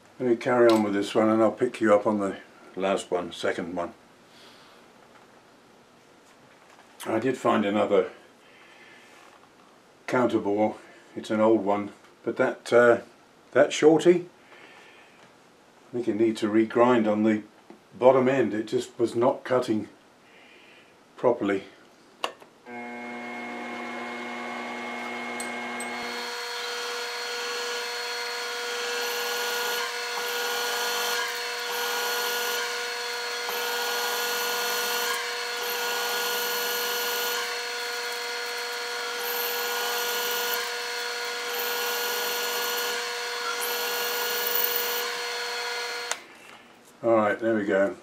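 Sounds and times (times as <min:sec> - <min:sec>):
cutter scraping metal: 0:22.7 - 0:46.2
milling machine motor whine: 0:22.7 - 0:46.2.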